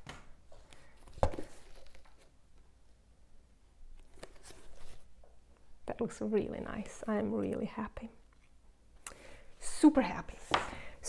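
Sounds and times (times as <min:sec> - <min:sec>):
handling cardboard box and books: 0:00.6 - 0:02.4, 0:04.0 - 0:05.2.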